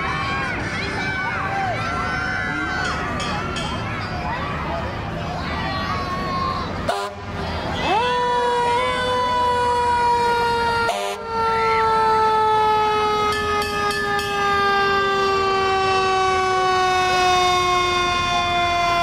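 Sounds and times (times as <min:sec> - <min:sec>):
fire truck siren winding down: 0:07.8 - 0:19.0.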